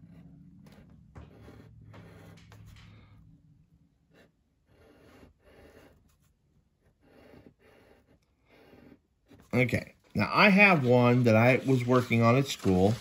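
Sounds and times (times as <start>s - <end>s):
pencil scratching on paper: 0.0s - 3.0s, 3.7s - 13.0s.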